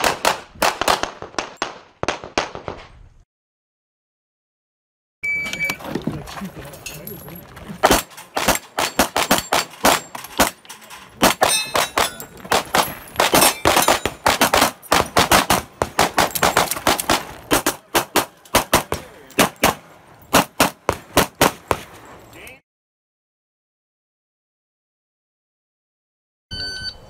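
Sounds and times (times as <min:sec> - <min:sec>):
rapid pistol gunfire: 0:00.0 - 0:02.7, 0:07.8 - 0:10.6, 0:12.5 - 0:21.8
bullets clanging steel plates: 0:06.7 - 0:22.3.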